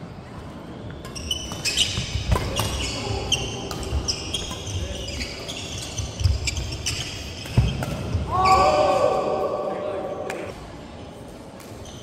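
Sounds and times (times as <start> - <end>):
shoes squeaking on court: 0.7 - 8.7
racket hitting shuttlecock: 1.0 - 2.9.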